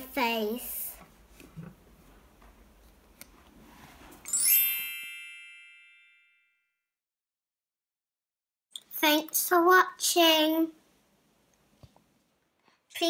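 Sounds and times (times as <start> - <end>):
sparkle chime sound effect: 4.2 - 6.7.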